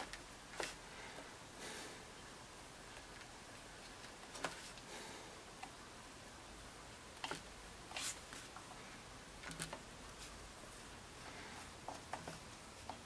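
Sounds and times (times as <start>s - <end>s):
low room hiss: 0.0s - 13.0s.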